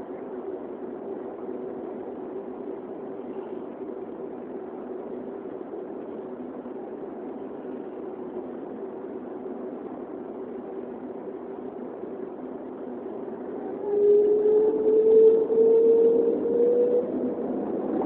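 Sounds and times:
jet engines humming in cabin: 0.0s - 18.0s.

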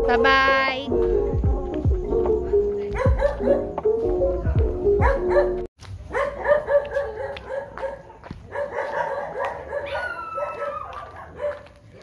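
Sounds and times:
dog barking: 2.9s - 3.8s, 4.9s - 12.0s.

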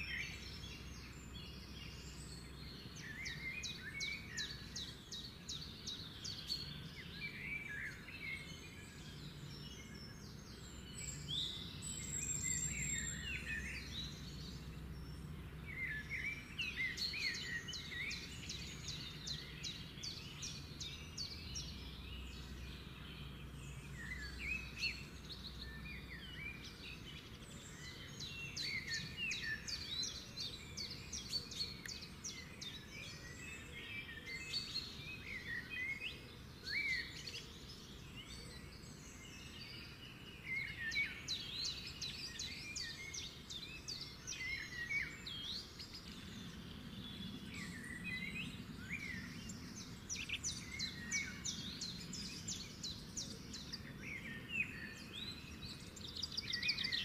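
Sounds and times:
birds chirping and calling: 0.0s - 57.0s.

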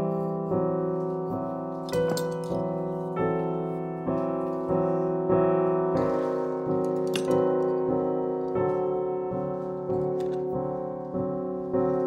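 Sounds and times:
slow piano music: 0.0s - 12.0s.

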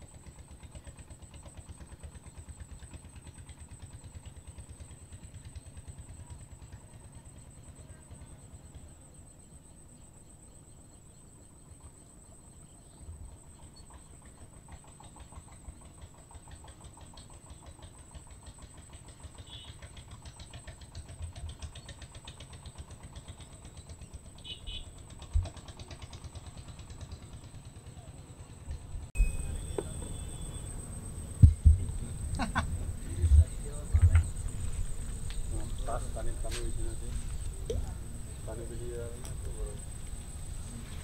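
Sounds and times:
distant engine throbbing: 14.2s - 41.0s
high-pitched whine: 29.0s - 41.0s.

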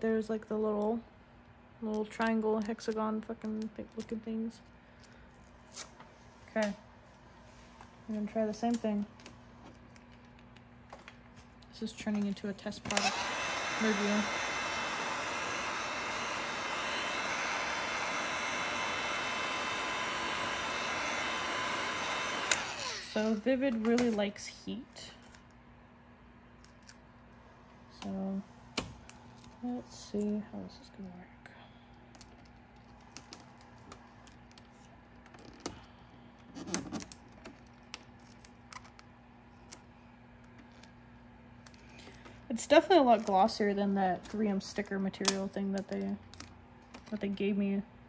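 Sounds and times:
heat gun blowing: 12.8s - 23.5s
vinyl film crinkling: 32.1s - 35.7s, 37.0s - 41.0s.

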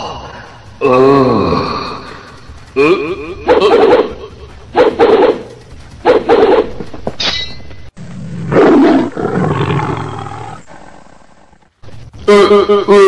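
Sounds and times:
lion roaring: 0.0s - 5.5s, 8.2s - 11.7s.

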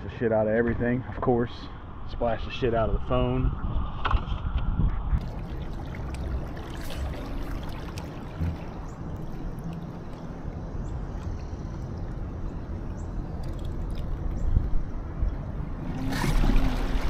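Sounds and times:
water lapping against a hull: 5.2s - 17.0s.

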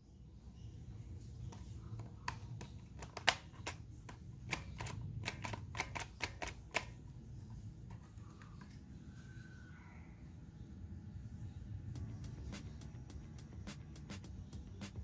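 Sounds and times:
low steady hum: 0.0s - 15.0s
paper parts clicking and tapping: 1.4s - 8.8s.

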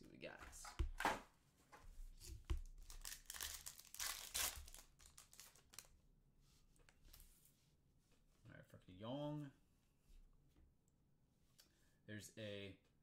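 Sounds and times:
foil wrapper tearing and crinkling: 2.7s - 5.9s.

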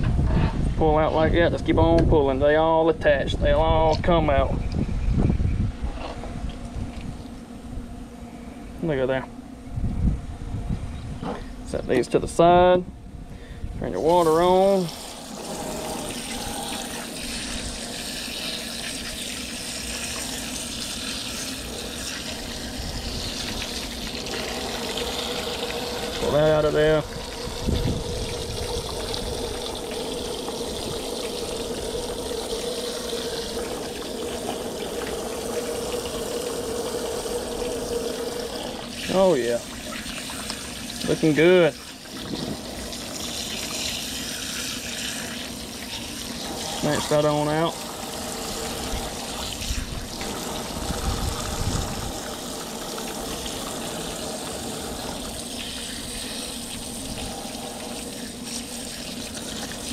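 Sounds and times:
steady hum: 0.0s - 59.9s
tap water running: 14.0s - 59.9s.

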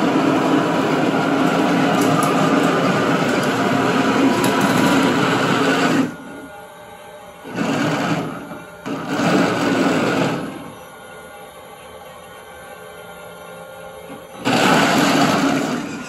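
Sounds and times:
toy tank motors and tracks running: 0.0s - 6.4s, 7.4s - 11.3s, 14.1s - 16.0s.

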